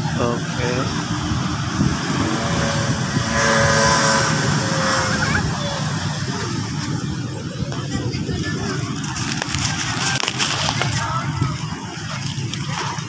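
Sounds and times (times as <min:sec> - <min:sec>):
vehicle passing: 0:00.0 - 0:07.6
traffic rumble: 0:00.0 - 0:13.0.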